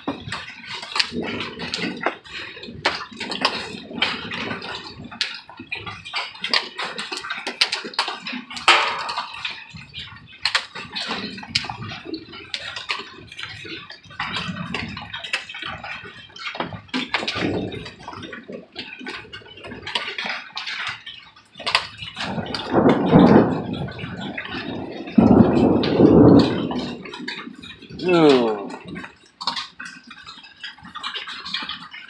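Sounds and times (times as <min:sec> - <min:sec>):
hailstones hitting surfaces: 0:00.0 - 0:21.0, 0:21.6 - 0:32.0
loud crack: 0:08.6 - 0:09.6.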